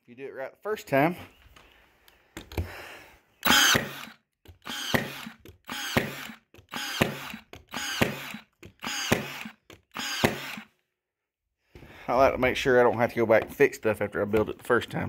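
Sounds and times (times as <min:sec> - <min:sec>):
nail gun firing into wood: 0:03.4 - 0:10.7.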